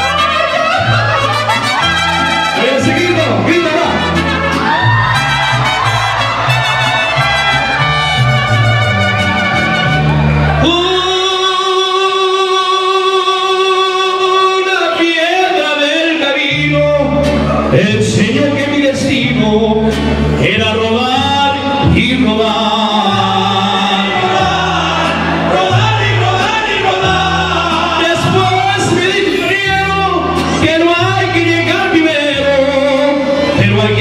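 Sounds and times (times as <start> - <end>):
violins and guitars: 0.0 - 12.7, 14.6 - 34.0
bass guitar line: 0.0 - 34.0
male voices singing in chorus: 21.9 - 29.4.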